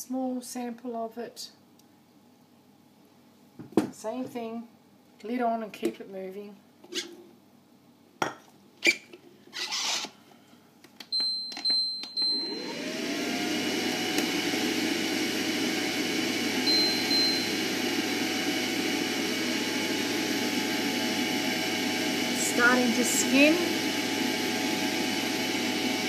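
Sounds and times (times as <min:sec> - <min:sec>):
cooker beep: 0:11.2 - 0:13.1, 0:16.4 - 0:18.7
mixer motor whine: 0:12.2 - 0:26.0.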